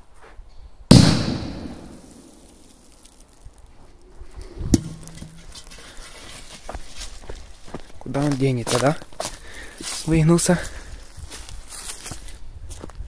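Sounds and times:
firecracker bang: 0.9 - 2.9.

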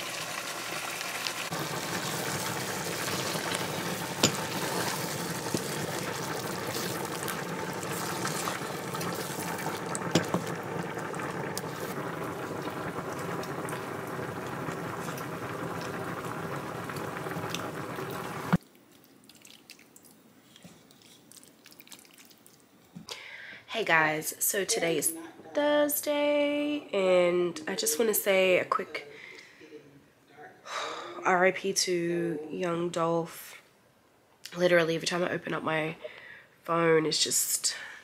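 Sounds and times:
food boiling in pots: 0.0 - 22.9.

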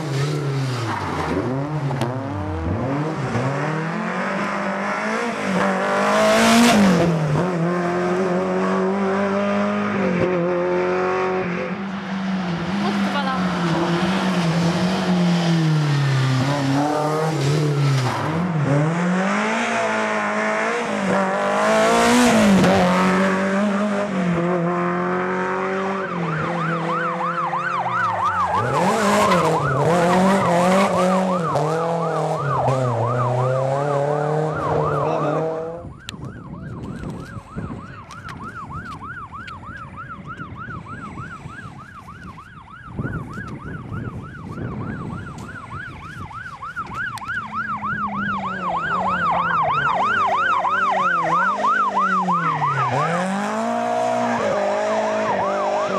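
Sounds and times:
rally car engines revving: 0.0 - 36.0, 44.8 - 55.9
warbling electronic siren: 25.2 - 55.9.

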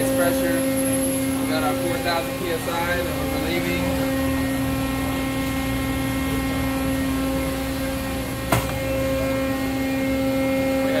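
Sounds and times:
hydraulic pump humming whine: 0.0 - 11.0.

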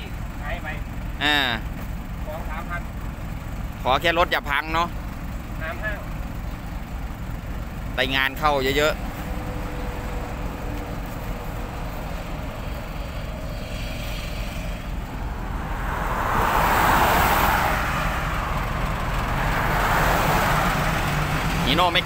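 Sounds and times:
road traffic rumble: 0.0 - 22.0
vehicle passing: 9.0 - 22.0.

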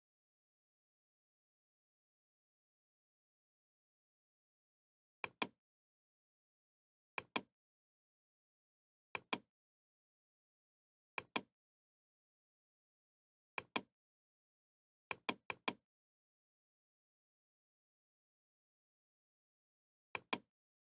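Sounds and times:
computer mouse clicks: 5.2 - 5.6, 7.2 - 7.5, 15.1 - 15.8, 20.2 - 20.5.

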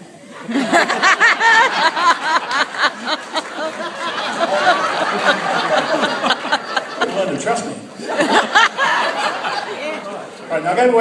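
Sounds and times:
audience laughing: 0.1 - 10.6.

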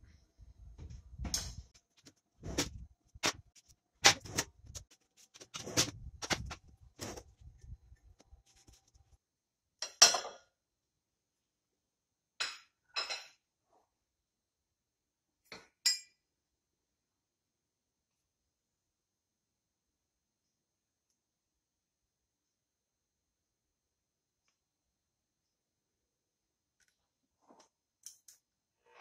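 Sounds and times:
kitchenware clattering: 9.8 - 10.5.

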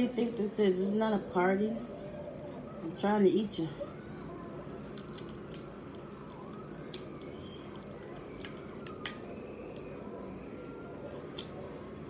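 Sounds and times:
low background hum: 0.0 - 12.0
crab shell cracking: 4.6 - 10.0.

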